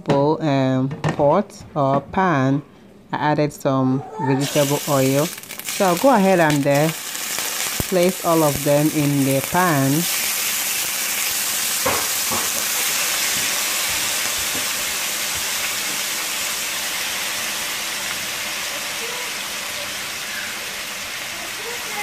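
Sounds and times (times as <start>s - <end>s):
meat sizzling in oil: 4.4s - 22.0s.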